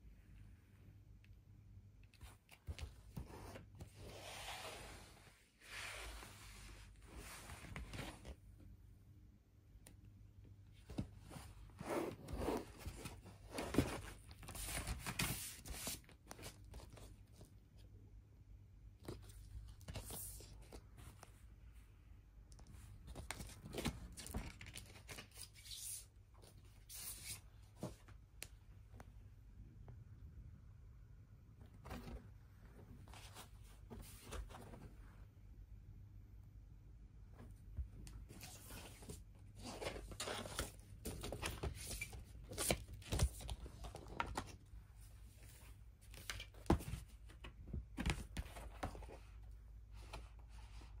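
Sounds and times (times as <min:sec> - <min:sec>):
record sleeve rustling and scraping: 0:10.9 - 0:17.5, 0:38.3 - 0:44.7, 0:45.4 - 0:49.3.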